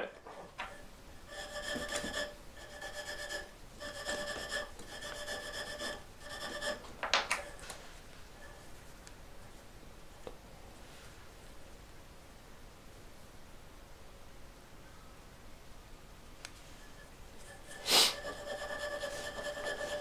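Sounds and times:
compound rubbing on string: 0.6 - 8.8, 16.8 - 20.0.

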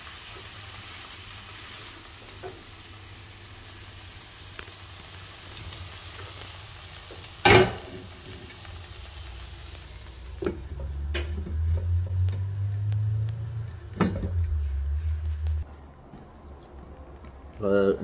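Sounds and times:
beans sizzling in a wok: 0.0 - 15.6
low rumble: 9.5 - 17.1.

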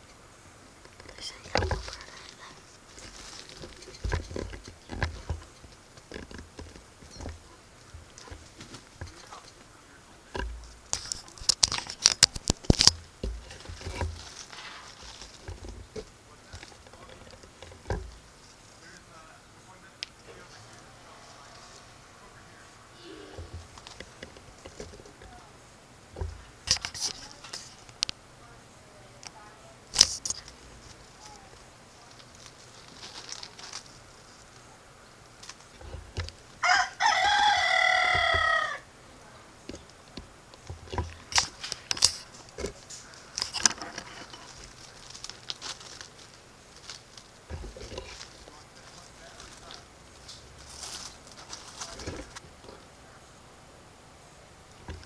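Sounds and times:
sharp clicks and rustles: 0.0 - 28.2, 29.2 - 38.6, 39.6 - 53.0
rooster crowing: 20.4 - 23.8, 36.6 - 38.9.

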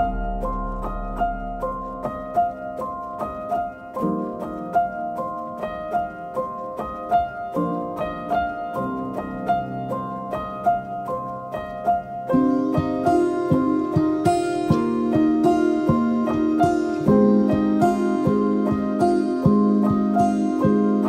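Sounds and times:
soft held chords: 0.0 - 21.0
plucked harp-like notes: 12.4 - 21.0.

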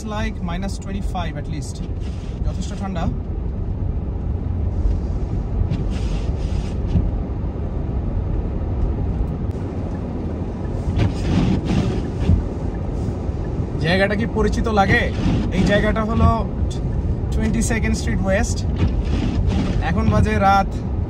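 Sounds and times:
car driving on snowy road: 0.0 - 21.0
brief hissing: 4.9 - 7.0.

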